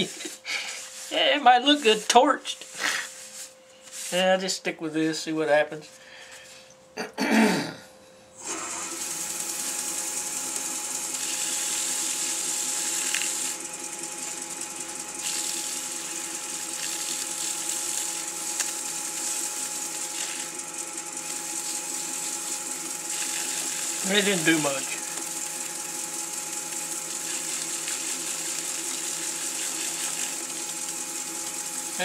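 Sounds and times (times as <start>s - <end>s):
wood lathe running: 8.4s - 32.0s.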